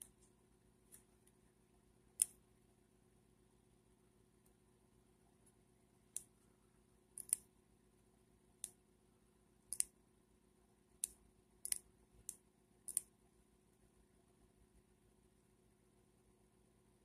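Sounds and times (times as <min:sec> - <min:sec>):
pen nib clicking on paper: 0:11.0 - 0:13.1.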